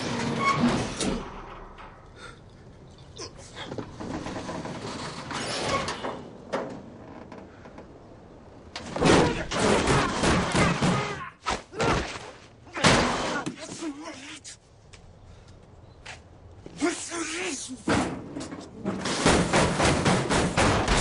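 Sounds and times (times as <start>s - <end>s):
garage door rolling up: 0.0s - 2.0s, 3.8s - 7.0s, 17.9s - 21.0s.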